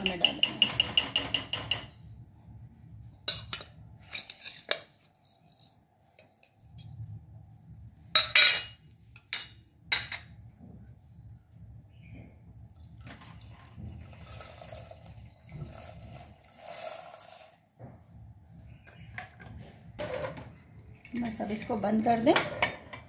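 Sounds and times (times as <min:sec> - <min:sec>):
ringing taps on steel plate: 0:00.0 - 0:02.0.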